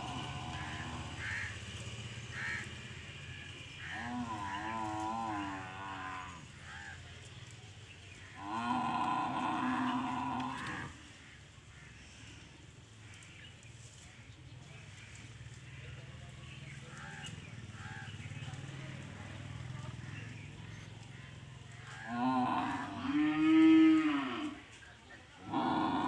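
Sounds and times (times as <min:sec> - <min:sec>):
cattle mooing: 0:00.0 - 0:01.7, 0:02.3 - 0:07.0, 0:08.2 - 0:11.1, 0:21.8 - 0:24.7, 0:25.4 - 0:26.0
steady low hum: 0:00.0 - 0:23.2.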